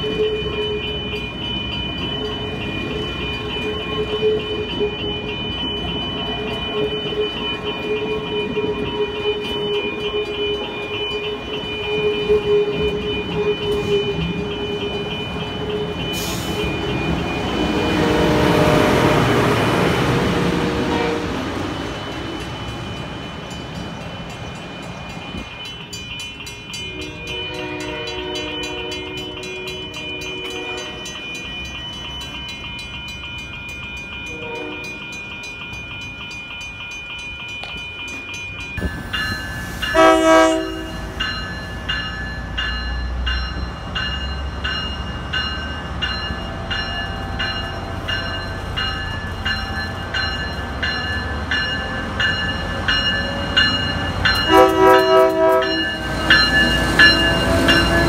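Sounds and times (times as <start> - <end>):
bell ringing: 0.0 - 18.7, 21.4 - 58.0
loud locomotive horn: 17.6 - 21.5, 26.9 - 31.1, 34.3 - 35.0, 39.9 - 41.1, 54.4 - 56.1
faint train horn chord: 26.9 - 31.1, 39.9 - 41.1, 54.5 - 56.0.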